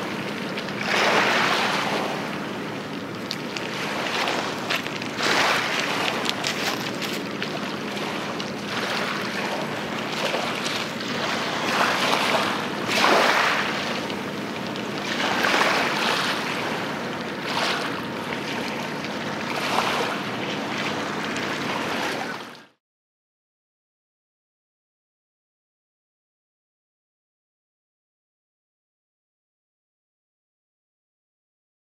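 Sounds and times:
faint low engine hum: 0.0 - 22.8
harbour water: 0.0 - 22.8.

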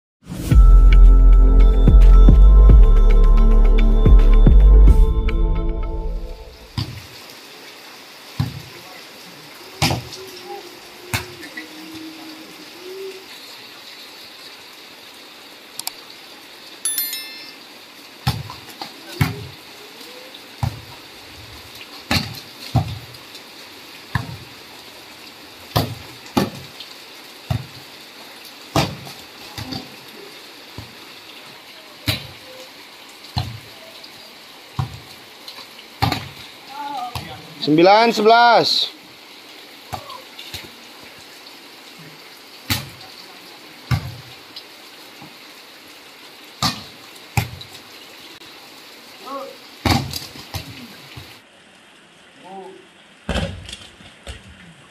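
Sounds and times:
heavy rain hiss: 0.3 - 53.2
volleyball smacks on wet ball: 36.0 - 36.4.

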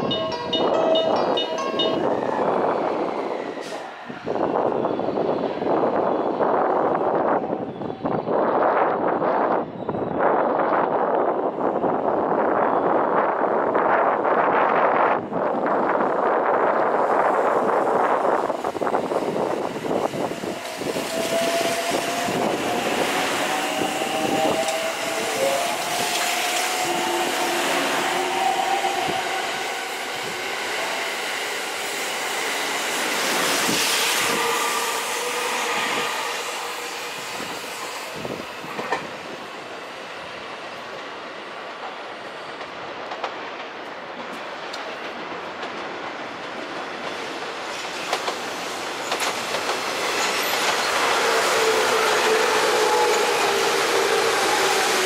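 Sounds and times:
train wheels clacking: 41.8 - 55.0
train motor whine: 50.2 - 55.0.

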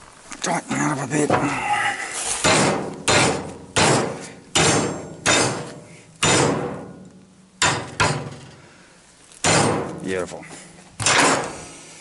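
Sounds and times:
hammer striking steel rod: 2.5 - 6.9, 7.6 - 8.4.

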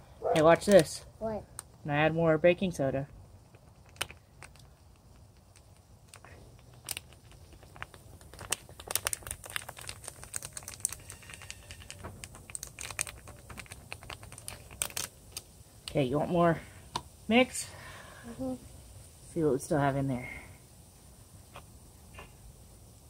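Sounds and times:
plastic bag crinkling: 3.5 - 15.5.

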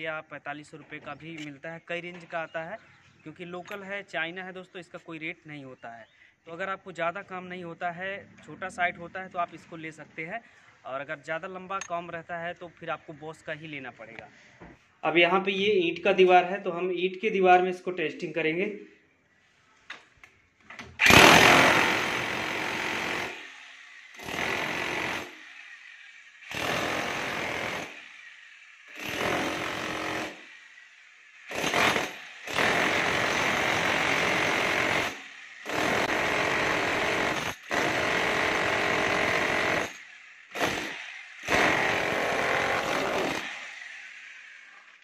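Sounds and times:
demolition hammer on brick: 26.5 - 28.0, 29.0 - 30.4, 31.5 - 39.9.

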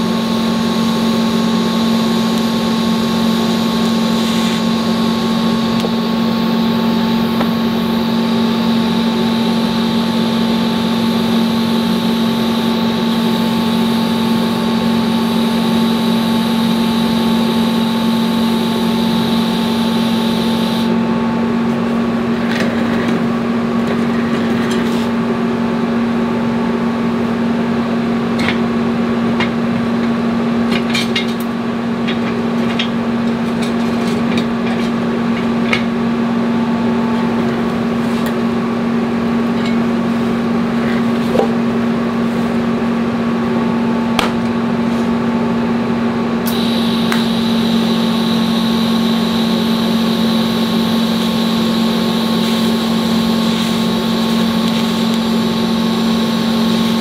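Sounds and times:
welding arc hiss: 0.0 - 20.9, 46.5 - 57.0
welder electrical hum: 0.0 - 57.0.

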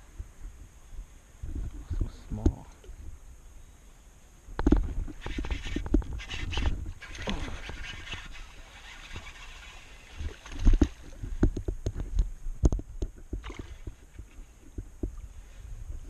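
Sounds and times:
knocks and thumps on plastic kayak: 10.2 - 14.0.

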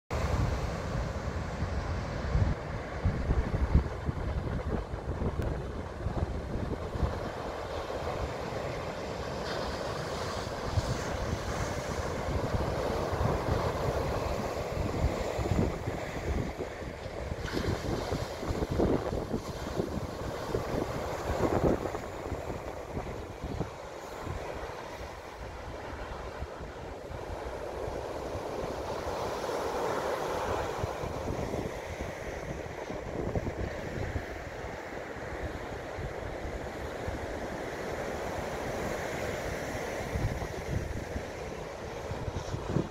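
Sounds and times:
surf breaking on beach: 0.1 - 42.9
wind rumble on microphone: 0.1 - 42.9.

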